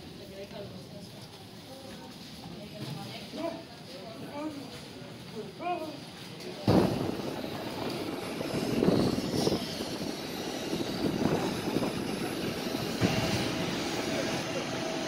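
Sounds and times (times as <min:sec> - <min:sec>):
steady whine: 0:06.7 - 0:15.0
jet aircraft rushing hum: 0:06.8 - 0:15.0.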